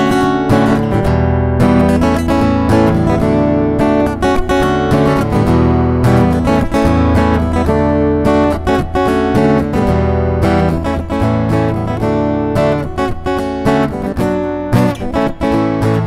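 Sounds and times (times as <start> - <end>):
acoustic guitar strumming chords: 0.0 - 16.0.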